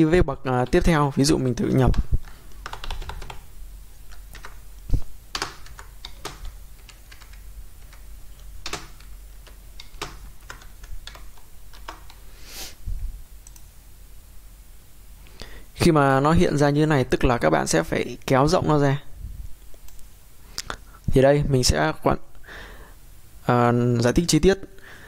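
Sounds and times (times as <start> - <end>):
computer keyboard keystrokes: 1.9 - 3.4, 4.1 - 4.6, 5.3 - 12.2.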